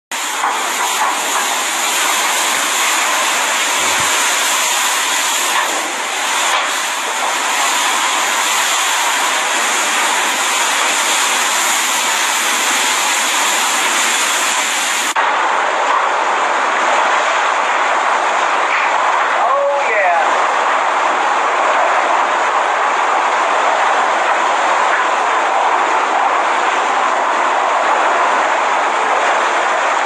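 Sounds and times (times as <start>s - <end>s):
strong wind rushing: 3.4s - 6.2s.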